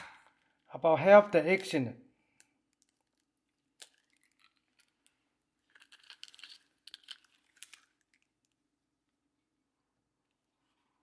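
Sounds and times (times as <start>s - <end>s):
eggshell crackling: 2.3s - 8.6s.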